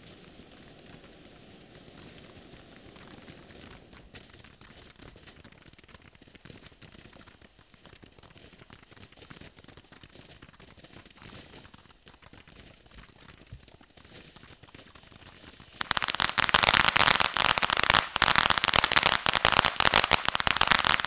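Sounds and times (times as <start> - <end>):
crackling firework pops: 0.0 - 21.0
firework fountain hissing: 15.0 - 21.0.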